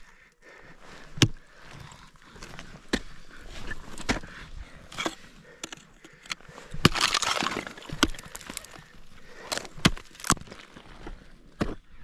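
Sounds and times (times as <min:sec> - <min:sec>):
ice tools striking ice: 0:06.8 - 0:08.8, 0:09.4 - 0:10.8
ice shattering crackle: 0:06.9 - 0:08.8.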